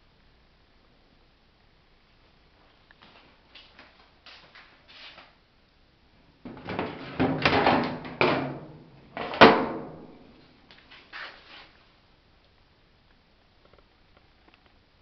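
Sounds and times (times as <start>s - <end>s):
dryer door clack: 6.5s - 10.1s.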